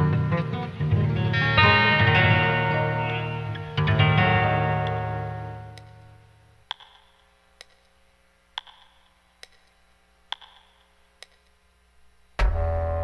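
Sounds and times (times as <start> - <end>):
guitar chord: 0.0 - 6.5.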